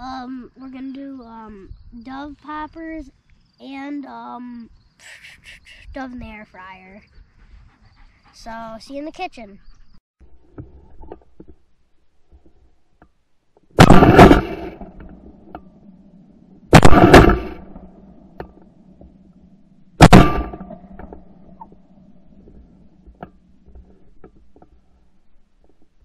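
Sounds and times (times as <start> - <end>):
shotgun shots with echo: 13.8 - 15.1, 16.7 - 17.9, 20.0 - 20.8.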